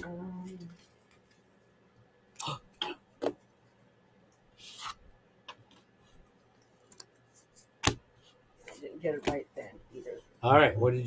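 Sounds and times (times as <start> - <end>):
card sliding: 4.6 - 5.0
cards clicking on tabletop: 7.8 - 8.0.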